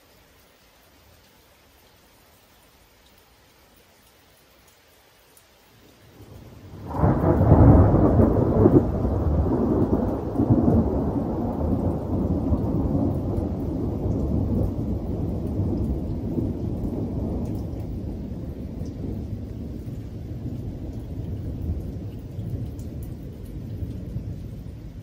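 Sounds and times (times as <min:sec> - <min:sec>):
thunder rumbling and crackling: 0:06.2 - 0:25.0.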